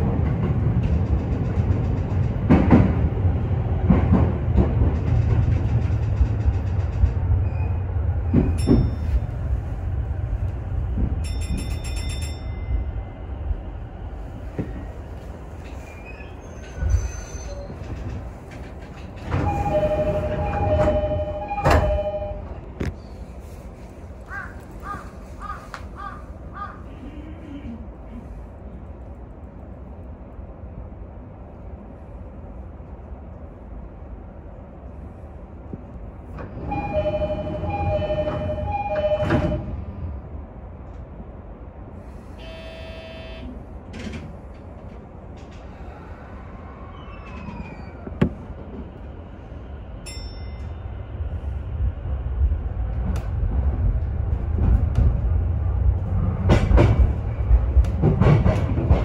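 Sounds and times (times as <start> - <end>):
train thump: 0.0 - 3.2, 3.8 - 7.2, 8.2 - 9.3, 14.4 - 15.0, 17.7 - 23.0, 38.2 - 39.7, 48.0 - 49.0, 56.0 - 59.0
train running: 0.0 - 59.0
electronic buzzer tone: 42.4 - 43.5.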